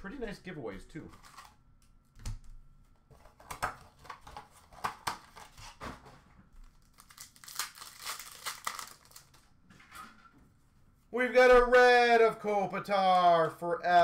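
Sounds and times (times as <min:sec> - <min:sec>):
card pack wrapper crinkling and tearing: 0:01.1 - 0:01.6, 0:06.6 - 0:09.5.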